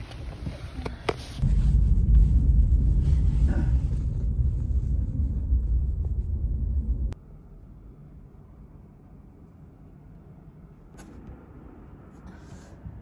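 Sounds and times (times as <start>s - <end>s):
car rumbling inside cabin: 0.0s - 13.0s.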